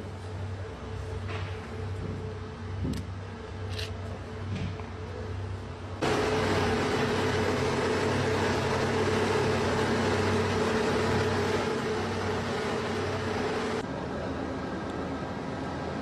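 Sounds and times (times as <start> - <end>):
diesel engines humming: 5.1 - 16.0.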